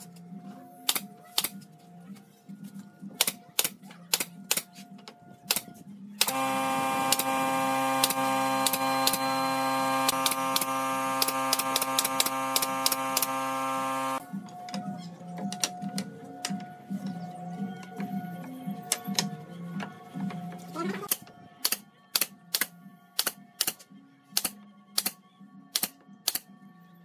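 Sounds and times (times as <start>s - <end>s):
loud steady hum: 6.2s - 14.2s
nail gun shots into wood: 10.1s - 13.4s, 21.1s - 23.8s, 24.4s - 26.5s.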